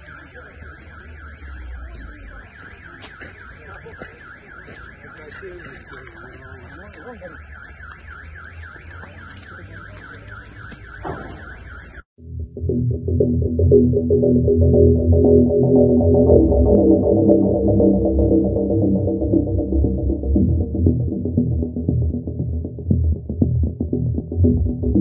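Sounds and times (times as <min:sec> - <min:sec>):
car alarm warbling: 0:00.0 - 0:25.0
electronic music: 0:12.2 - 0:25.0.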